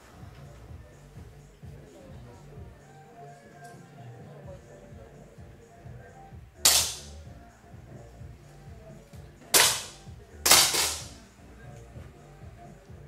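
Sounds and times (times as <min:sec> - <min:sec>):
air pistol shots: 0:06.6 - 0:07.1, 0:09.6 - 0:11.2.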